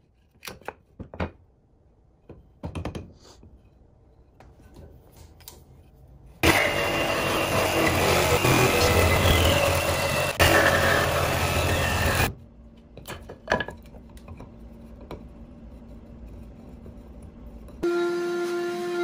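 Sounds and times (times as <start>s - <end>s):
jigsaw cutting wood: 6.4s - 12.3s.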